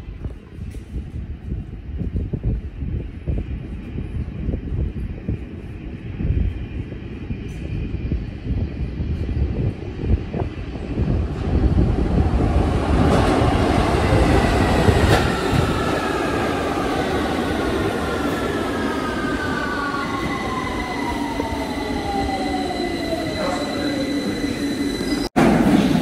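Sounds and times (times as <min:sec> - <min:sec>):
train braking: 0:13.0 - 0:26.0.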